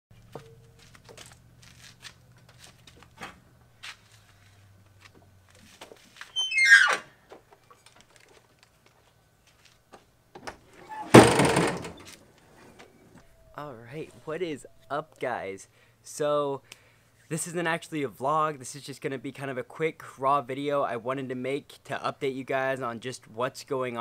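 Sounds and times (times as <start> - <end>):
hinge squealing: 6.3 - 7.1, 10.8 - 12.2
tailgate clattering open: 10.4 - 12.1.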